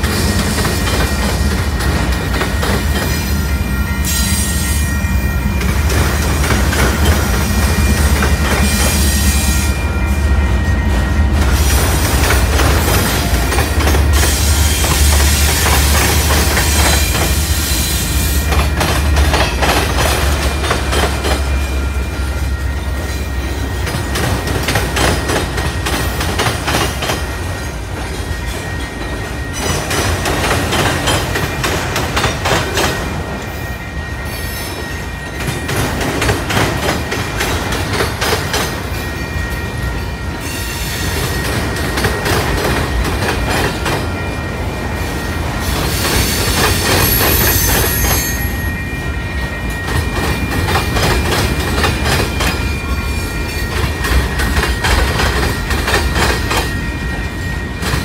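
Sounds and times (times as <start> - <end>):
train wheels clattering over rail joints: 0.0 - 3.2, 5.6 - 9.4, 11.4 - 21.7, 23.7 - 33.4, 35.2 - 39.0, 41.0 - 44.3, 49.8 - 53.0, 53.6 - 57.2
wheel flange squeal: 45.0 - 55.6.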